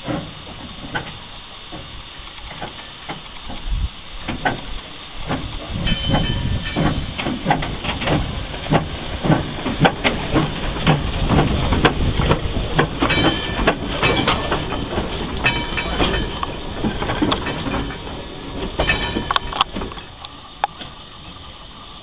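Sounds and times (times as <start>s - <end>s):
train wheels clanking over rails: 0.0s - 22.0s
high metallic squeals: 5.8s - 7.0s.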